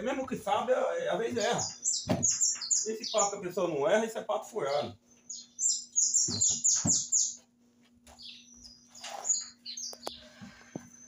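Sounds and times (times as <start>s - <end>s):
small bird chirping: 1.0s - 3.9s, 4.6s - 7.5s, 8.1s - 11.0s
dull knocks: 1.4s - 2.4s.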